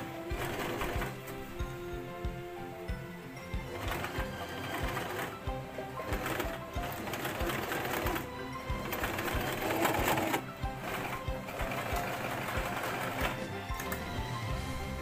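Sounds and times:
sewing machine stitching: 0.0 - 1.5, 3.7 - 14.2
background music: 0.0 - 15.0.

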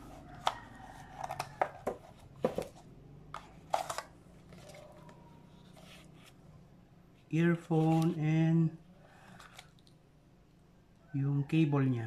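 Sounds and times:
cardboard taps and scrapes: 1.2 - 2.8.

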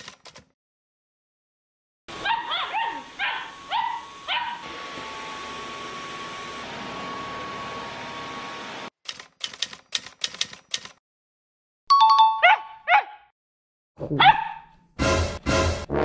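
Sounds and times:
typewriter-style key clicks: 0.0 - 0.5, 9.1 - 11.0
puppy barking: 2.2 - 4.6, 12.4 - 13.3, 14.0 - 14.8.

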